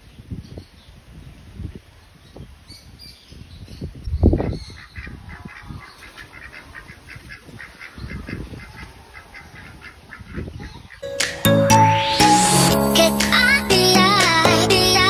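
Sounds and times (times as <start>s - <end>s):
wind rumble on microphone: 0.0s - 11.0s
ducks quacking: 4.4s - 11.0s.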